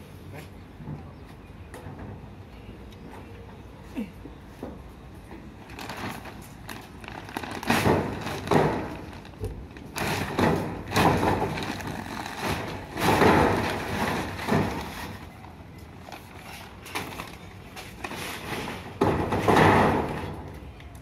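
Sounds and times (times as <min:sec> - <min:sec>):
foil sheet crackling and rustling: 0:05.6 - 0:15.4.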